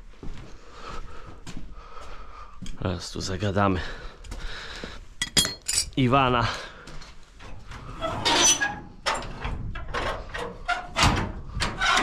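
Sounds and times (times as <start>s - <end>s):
metal shed door scraping: 7.6s - 12.0s
metal door knocks and rattles: 9.0s - 12.0s.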